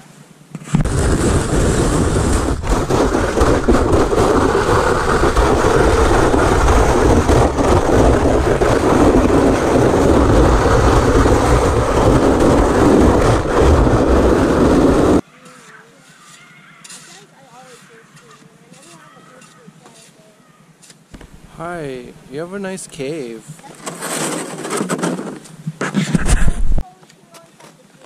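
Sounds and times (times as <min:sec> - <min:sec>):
sled scraping over snow: 0:00.6 - 0:20.4, 0:21.2 - 0:27.0.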